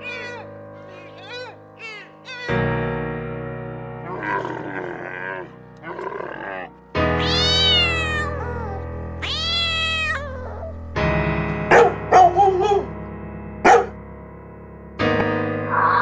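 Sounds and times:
cat meowing: 0.0s - 2.7s, 7.2s - 10.8s
background music: 0.0s - 16.0s
dog barking: 11.7s - 13.0s, 13.6s - 14.0s.

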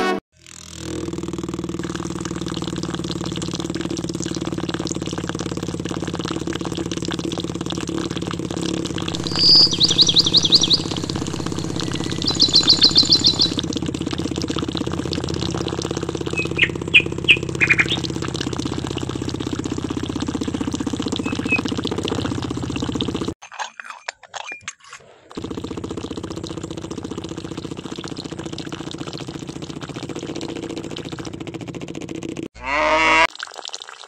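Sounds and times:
small motor pump humming: 0.4s - 23.4s, 25.4s - 33.0s
bird trilling and chirping: 9.2s - 13.6s, 16.4s - 18.1s, 21.2s - 21.6s.

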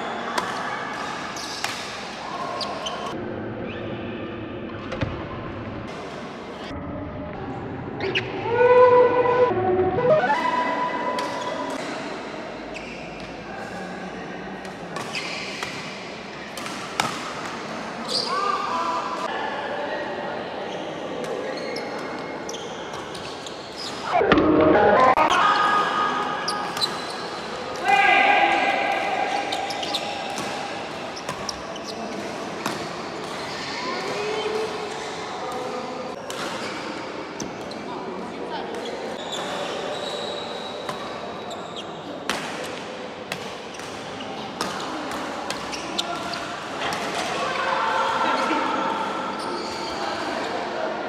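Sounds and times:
sneakers squeaking on floor: 1.0s - 1.8s, 15.1s - 15.7s, 18.0s - 18.4s, 20.7s - 24.2s, 29.5s - 30.5s, 31.2s - 35.1s, 39.2s - 42.1s, 45.6s - 46.6s, 49.4s - 50.1s.

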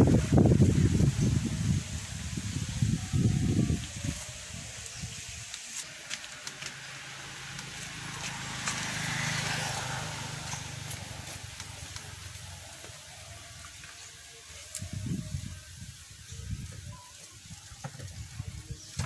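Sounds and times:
dry leaves and twigs crackling: 2.5s - 19.0s
low engine-like hum: 6.2s - 13.9s.

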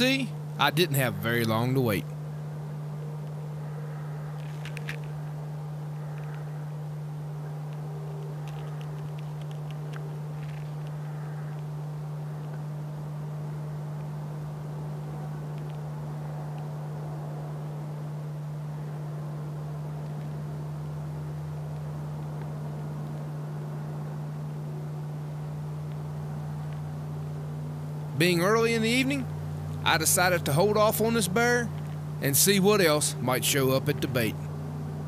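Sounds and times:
steady low hum: 0.0s - 35.0s
faint light clicks: 15.5s - 15.8s.

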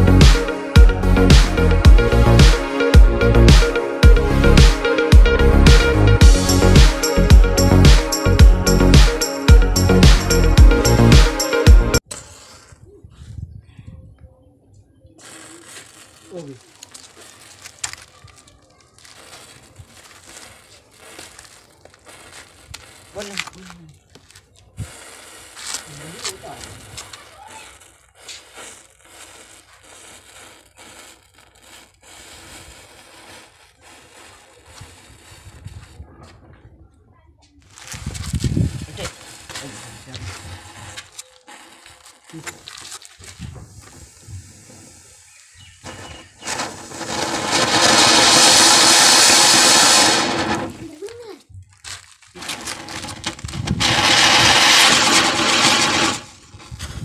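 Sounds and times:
matches flaring with fizzing hiss: 15.2s - 36.0s, 37.7s - 51.3s, 52.3s - 56.8s
firework whistle: 24.8s - 35.6s, 44.6s - 50.7s.

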